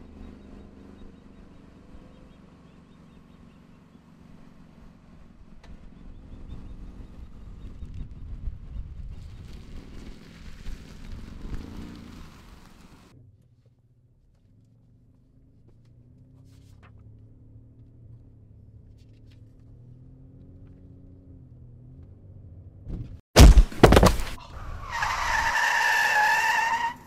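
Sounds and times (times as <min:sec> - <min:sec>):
car engine hum: 0:00.0 - 0:27.0
car striking pedestrian thump: 0:22.9 - 0:24.4
tyre screech: 0:24.2 - 0:27.0.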